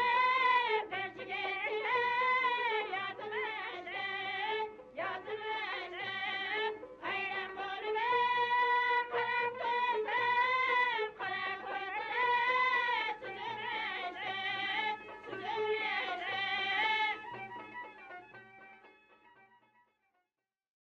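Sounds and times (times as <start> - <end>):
melody of long held notes: 11.4 - 19.6.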